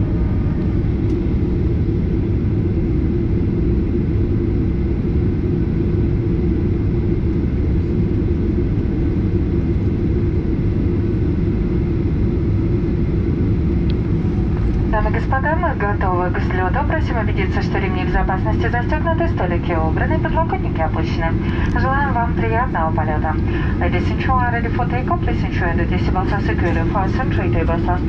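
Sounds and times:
aircraft engines idling: 0:00.0 - 0:28.0
cabin air conditioning: 0:06.3 - 0:28.0.

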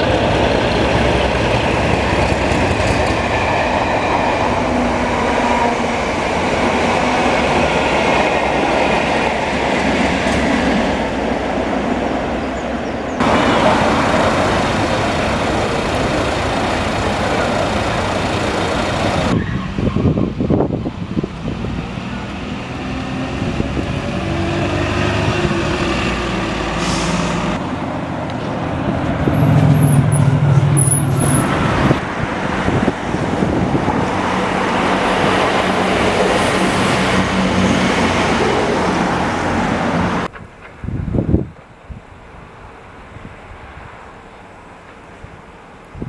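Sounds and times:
bus engines running: 0:12.9 - 0:40.3
short air hiss: 0:26.8 - 0:27.5.

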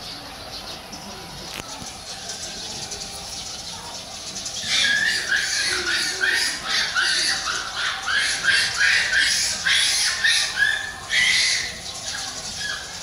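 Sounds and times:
pigs squealing: 0:04.6 - 0:13.0.

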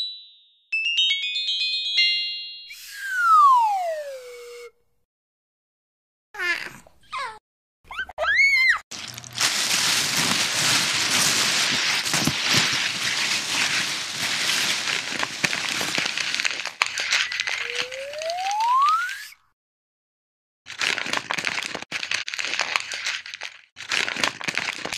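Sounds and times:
rising whistle: 0:02.7 - 0:04.8, 0:17.4 - 0:19.4
plastic bags crinkling: 0:08.9 - 0:18.8, 0:20.7 - 0:24.9.

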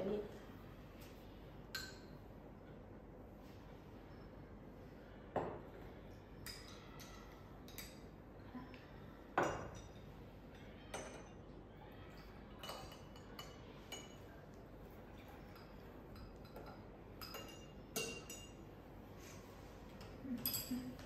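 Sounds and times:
glass clinking: 0:01.7 - 0:02.1, 0:06.4 - 0:08.1, 0:09.4 - 0:11.4, 0:12.6 - 0:14.3, 0:15.2 - 0:18.6, 0:20.0 - 0:21.0.

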